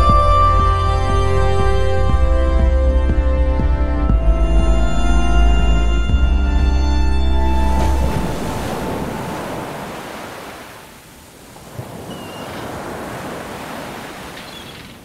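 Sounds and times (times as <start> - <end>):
low music drone: 0.0 - 9.6
ocean surf washing against rocks: 7.8 - 15.0.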